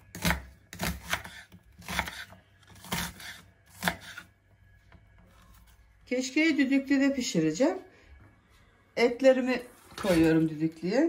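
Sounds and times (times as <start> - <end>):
knife chopping on wooden board: 0.0 - 4.3.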